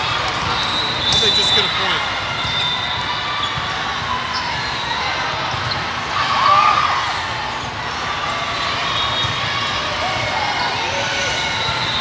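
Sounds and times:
sneakers squeaking on court floor: 0:00.2 - 0:06.0.

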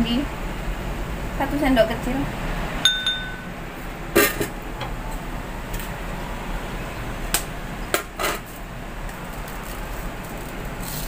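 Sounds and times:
low steady hum: 0:00.0 - 0:08.0
jars and spoon knocking: 0:02.9 - 0:03.5.

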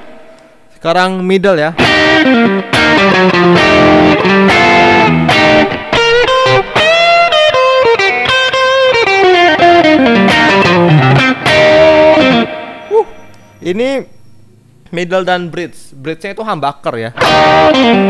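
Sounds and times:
overdriven electric guitar licks: 0:01.8 - 0:13.6, 0:17.2 - 0:18.0.

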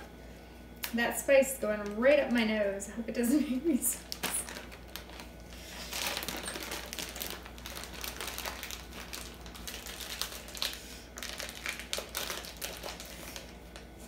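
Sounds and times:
plastic bag crinkling: 0:04.0 - 0:14.0.

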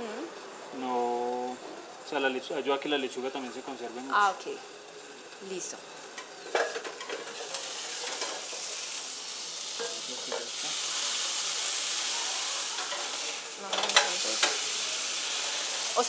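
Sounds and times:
burger patty sizzling in a pan: 0:00.0 - 0:16.0
metal spatula tapping and scraping: 0:13.7 - 0:14.6.

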